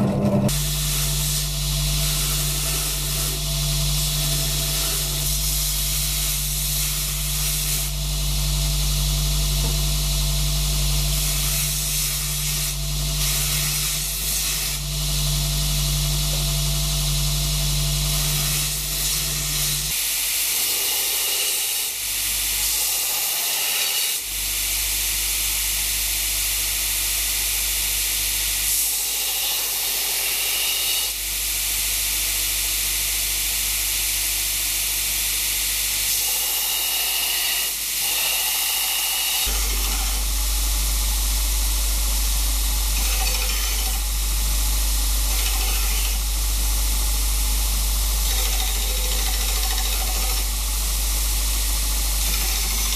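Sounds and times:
blade grinding on belt grinder: 0:00.0 - 0:08.0, 0:17.0 - 0:22.0, 0:28.8 - 0:31.2, 0:36.1 - 0:40.5, 0:42.5 - 0:44.2, 0:45.1 - 0:46.4, 0:47.4 - 0:52.9
grinder motor hum: 0:00.0 - 0:21.9, 0:35.9 - 0:52.9.

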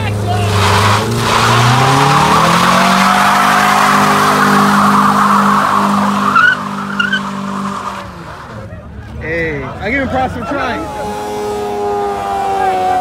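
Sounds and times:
car engine revving: 0:00.0 - 0:09.2, 0:10.8 - 0:13.0
tyres squealing: 0:00.6 - 0:08.7.

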